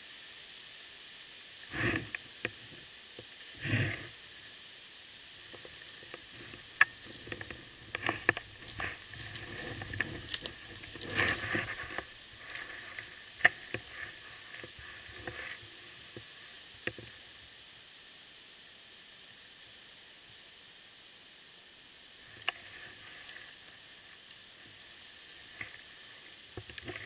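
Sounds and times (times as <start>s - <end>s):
twigs snapping underfoot: 5.6s - 15.5s
brush rustling against clothing: 6.3s - 15.9s
footsteps through leaf litter: 8.4s - 13.2s.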